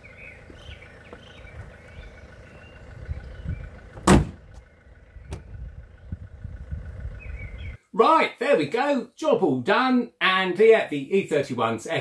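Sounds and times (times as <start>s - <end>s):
low rumbling background: 0.0s - 7.8s
car bonnet thump: 4.0s - 4.5s, 5.3s - 5.5s.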